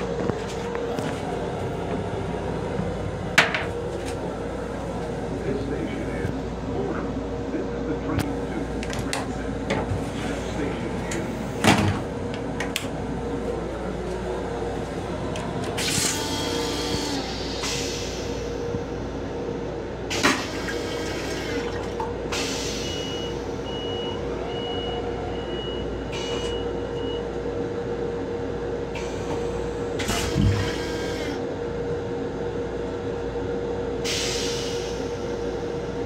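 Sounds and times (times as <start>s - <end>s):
train car hum: 0.0s - 36.0s
toilet flushing: 20.1s - 22.7s.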